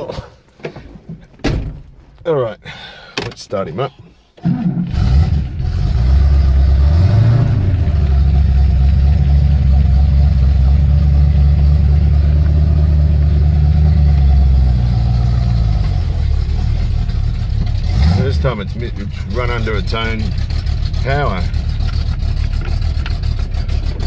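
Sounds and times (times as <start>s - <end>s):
car engine running: 4.9s - 24.0s.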